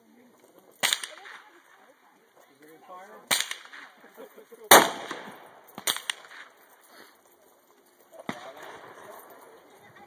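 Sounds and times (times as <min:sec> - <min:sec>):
rifle shots with echo: 0:00.8 - 0:01.5, 0:03.2 - 0:04.1, 0:04.7 - 0:06.6, 0:08.2 - 0:09.6.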